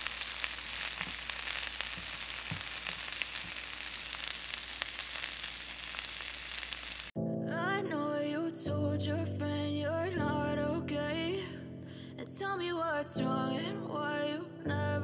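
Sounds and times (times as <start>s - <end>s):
food sizzling in oil: 0.0s - 7.2s.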